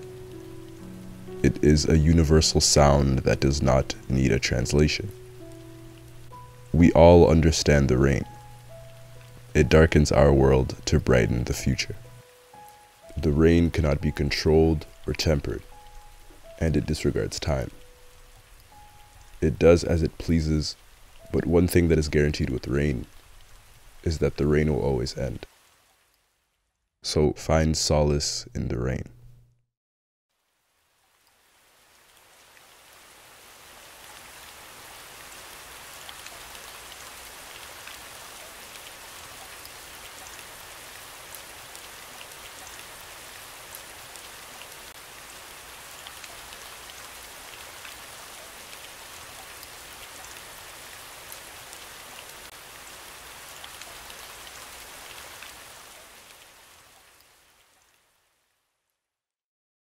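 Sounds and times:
steady rain: 0.0 - 27.2, 30.3 - 58.8.

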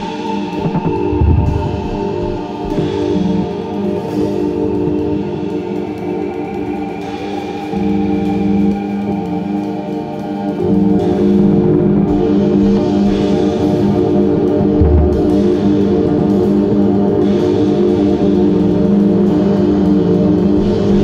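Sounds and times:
droning synth tones: 0.4 - 4.1
drum kit played with sticks: 0.5 - 3.6, 14.4 - 16.6.

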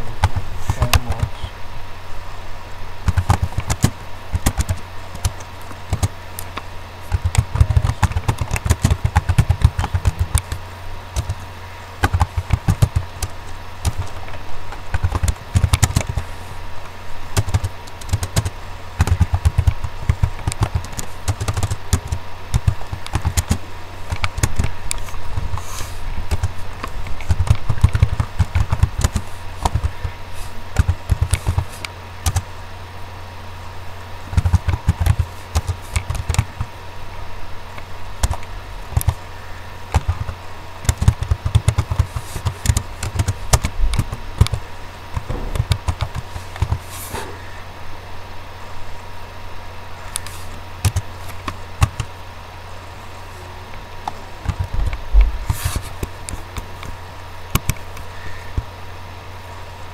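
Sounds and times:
steady low hum: 0.0 - 59.9
computer keyboard typing: 3.0 - 11.4, 12.0 - 16.3, 17.4 - 25.5, 26.3 - 30.1, 30.8 - 32.4, 34.3 - 36.7, 38.2 - 39.2, 39.9 - 44.6, 45.2 - 46.8, 50.8 - 52.1, 54.4 - 55.0.

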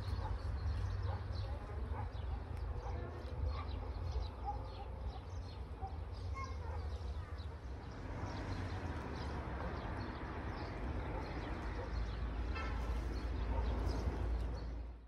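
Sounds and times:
low street rumble: 0.0 - 15.0.

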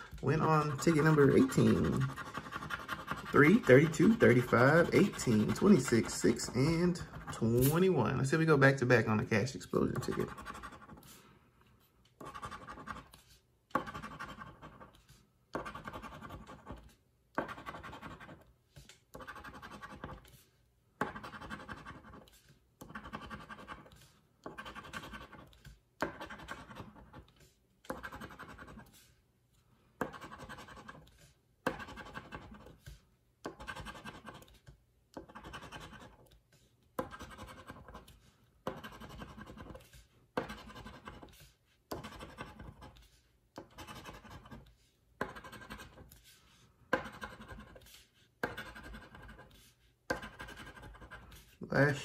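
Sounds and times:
scratcher scraping lottery ticket: 0.2 - 8.0.

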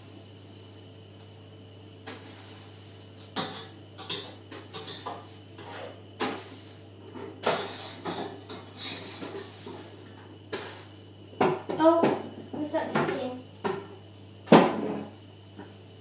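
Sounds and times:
dustpan and brush sweeping: 2.1 - 3.1, 5.0 - 6.9, 8.7 - 11.0.

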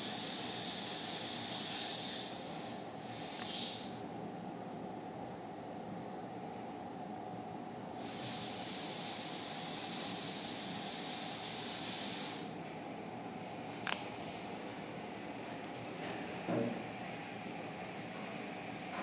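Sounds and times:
low room hum: 0.0 - 19.0
steady hiss: 7.9 - 12.6.

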